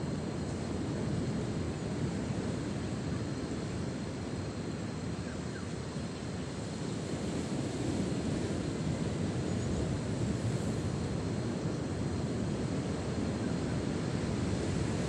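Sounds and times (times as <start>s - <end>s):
wind: 0.0s - 15.0s
sea surf on rocks: 6.3s - 15.0s.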